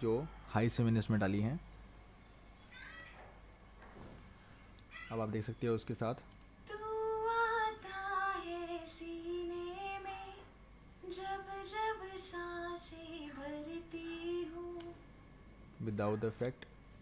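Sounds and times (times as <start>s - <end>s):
high solo singing voice: 6.7s - 15.0s.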